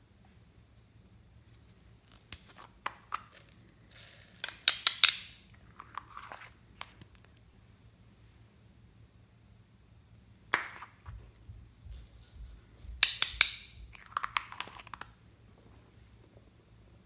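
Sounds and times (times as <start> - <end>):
plastic toy ball clicking and cracking: 2.3 - 6.0, 10.5 - 11.0, 12.9 - 15.2.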